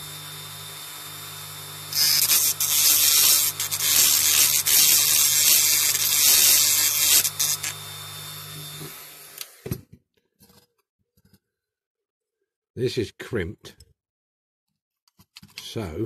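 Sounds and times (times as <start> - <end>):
drill bit grinding metal: 0.0 - 9.6
rotary drill motor humming: 0.0 - 9.7.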